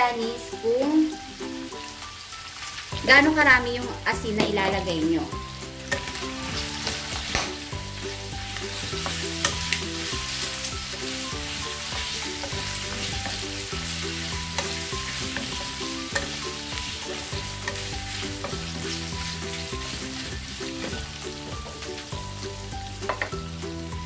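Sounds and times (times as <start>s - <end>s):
meat sizzling in a pan: 0.0s - 24.0s
soft background music: 0.0s - 24.0s
wooden spatula knocking on pan: 23.1s - 23.4s.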